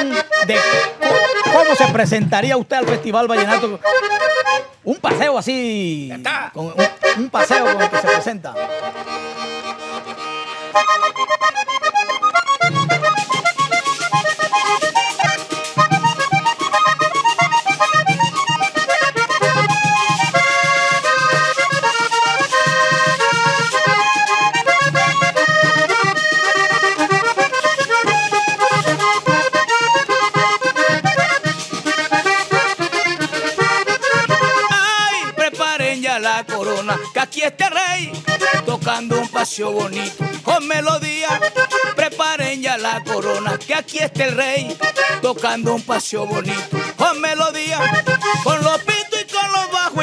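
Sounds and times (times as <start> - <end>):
button accordion melody: 0.0 - 5.2, 6.6 - 50.0
scraper percussion: 0.0 - 5.4, 8.8 - 50.0
drum: 0.5 - 3.4, 12.6 - 36.8, 45.4 - 49.0.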